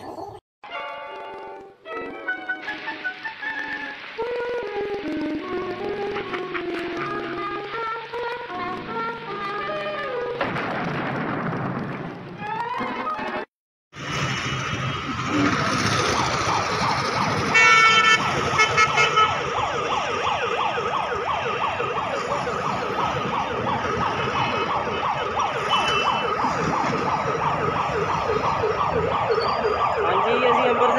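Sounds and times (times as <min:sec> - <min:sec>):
road traffic: 0:02.5 - 0:10.4, 0:13.9 - 0:30.9
long loud car horn: 0:17.5 - 0:19.4, 0:25.6 - 0:26.3.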